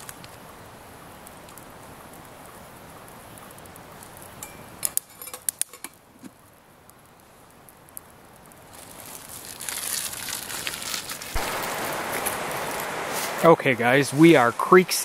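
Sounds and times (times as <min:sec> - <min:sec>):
campfire popping: 0:00.0 - 0:15.0
hiss: 0:11.3 - 0:15.0.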